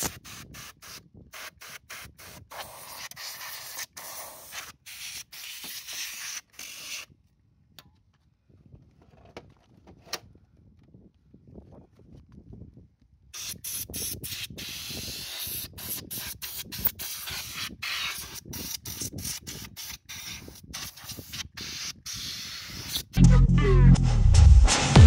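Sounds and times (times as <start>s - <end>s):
gas duster can hissing: 0.0s - 3.0s, 13.4s - 23.2s.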